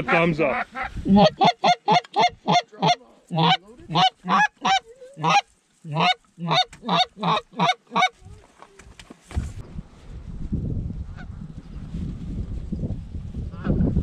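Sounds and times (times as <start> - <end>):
goose call honks and clucks: 0.0 - 8.2.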